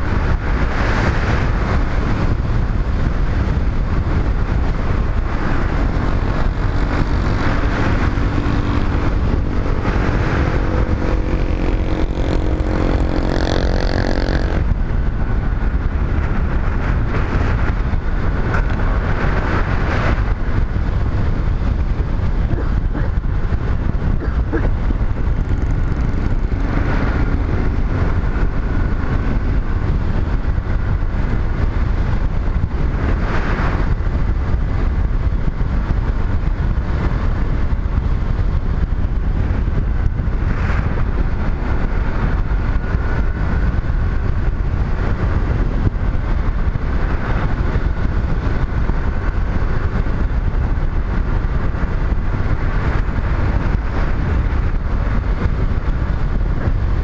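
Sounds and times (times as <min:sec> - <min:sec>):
motorcycle engine and tyres: 0:00.0 - 0:57.0
wind buffeting microphone: 0:00.0 - 0:57.0
humming tone: 0:06.7 - 0:14.7.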